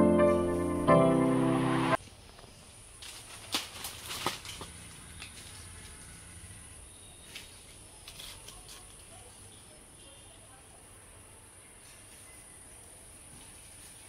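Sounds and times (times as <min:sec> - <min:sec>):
dry leaves rustling and crackling: 0:02.7 - 0:06.0.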